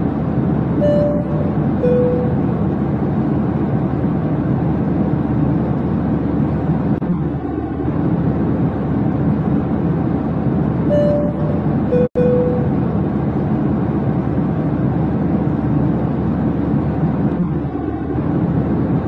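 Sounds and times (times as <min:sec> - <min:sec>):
airliner cabin drone: 0:00.0 - 0:19.0
short steady tone: 0:00.8 - 0:02.7, 0:10.9 - 0:13.0.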